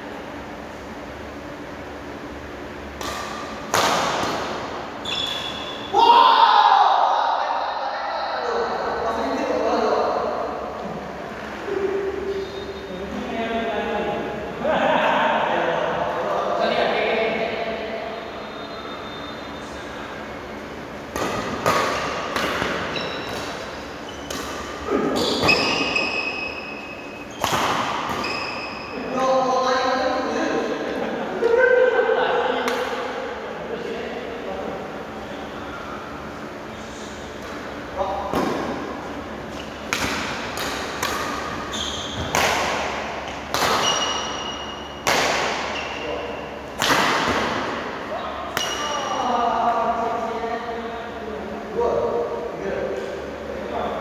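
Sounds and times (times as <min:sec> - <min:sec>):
racket striking shuttlecock: 0:02.9 - 0:04.7, 0:21.1 - 0:26.5, 0:27.3 - 0:28.4, 0:39.5 - 0:46.0, 0:46.7 - 0:47.9, 0:48.5 - 0:49.0
shoes squeaking on court: 0:05.0 - 0:05.9, 0:21.3 - 0:29.0, 0:41.2 - 0:42.4, 0:43.3 - 0:45.0, 0:45.6 - 0:46.4.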